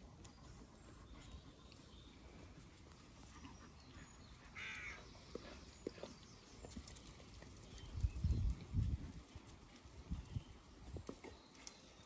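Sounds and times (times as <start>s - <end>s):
crow cawing: 4.6s - 5.0s.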